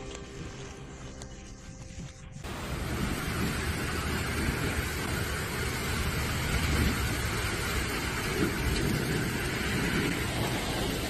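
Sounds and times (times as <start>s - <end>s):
heavy rain: 2.4s - 11.0s
wind buffeting microphone: 2.4s - 11.0s.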